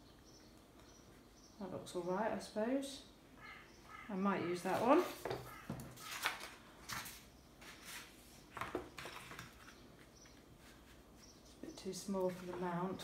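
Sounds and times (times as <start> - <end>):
paper rustling and scraping on wood: 4.7 - 11.3.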